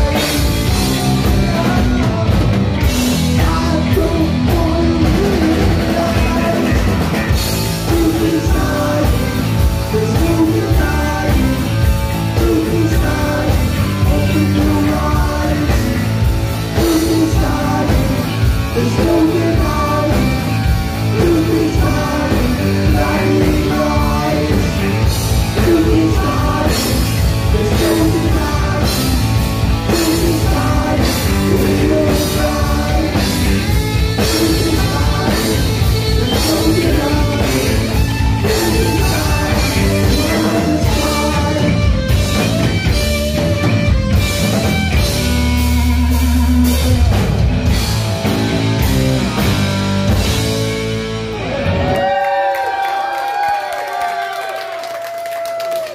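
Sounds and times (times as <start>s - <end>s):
man singing: 0.0s - 42.5s
distorted electric guitar: 0.0s - 52.2s
drum kit: 0.0s - 53.5s.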